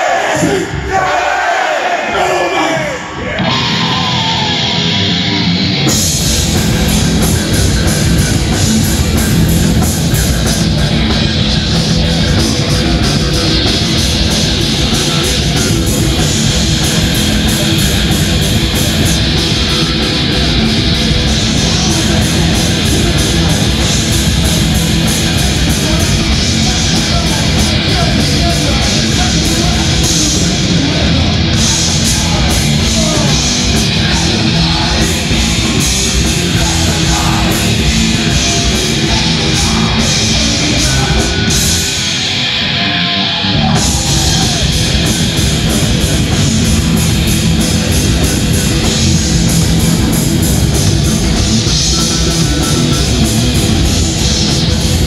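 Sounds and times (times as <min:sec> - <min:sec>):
metal band playing live: 0:02.7 - 0:55.0
lead vocal: 0:10.3 - 0:49.9.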